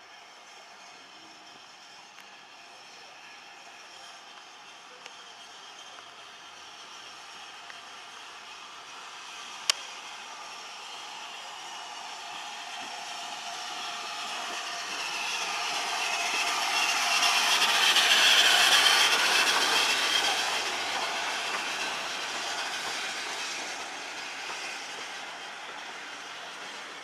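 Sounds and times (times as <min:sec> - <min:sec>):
steam locomotive passing: 0:00.0 - 0:27.0.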